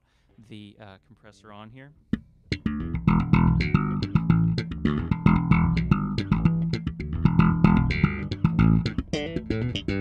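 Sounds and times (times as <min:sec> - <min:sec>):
slapped bass guitar notes: 0:02.1 - 0:10.0.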